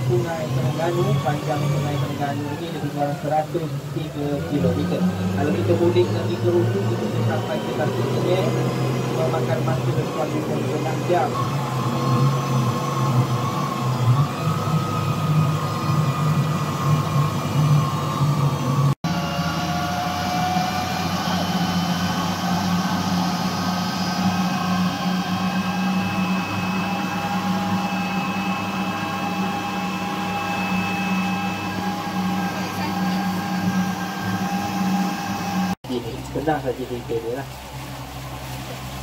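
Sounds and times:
outboard motor running: 0.0s - 39.0s
rush of boat wake: 0.0s - 39.0s.

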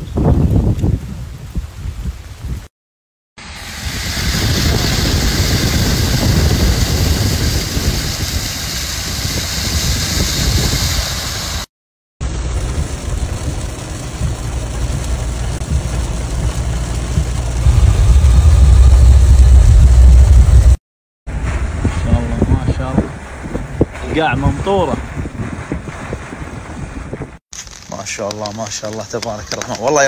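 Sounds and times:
engine and road rumble: 3.4s - 23.9s
hiss of water and rain: 3.4s - 25.2s.

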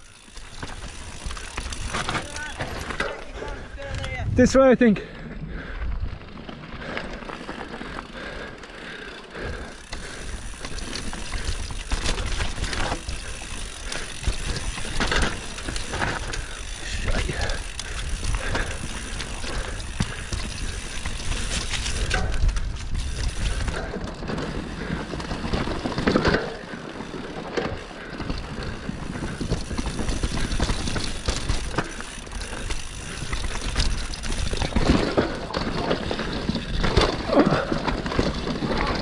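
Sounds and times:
bike chain and frame rattling: 0.0s - 39.0s
bike tyres on dirt: 0.0s - 39.0s
wind buffeting microphone: 3.6s - 4.6s.

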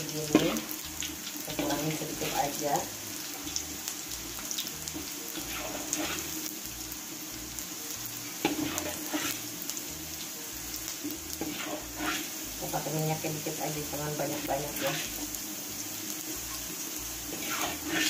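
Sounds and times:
ginger sizzling in hot oil: 0.0s - 18.0s
metal ladle scraping a wok: 5.0s - 6.4s, 8.4s - 9.4s, 11.4s - 12.4s, 14.6s - 15.2s, 17.3s - 18.0s.

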